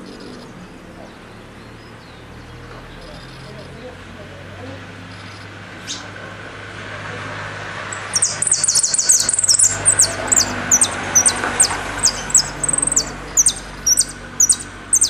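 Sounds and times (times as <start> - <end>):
goldfinch singing: 7.9 - 15.0.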